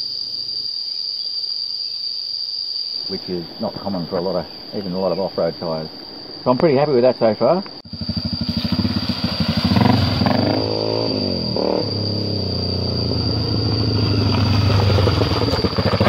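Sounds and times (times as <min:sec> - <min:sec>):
dirt bike engine revving: 0:07.8 - 0:16.0.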